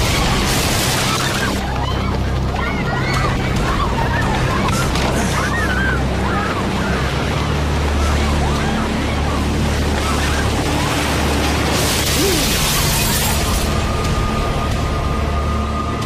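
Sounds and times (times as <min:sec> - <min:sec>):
people shouting and crying: 0:00.0 - 0:10.5
low rumbling drone: 0:00.0 - 0:16.0.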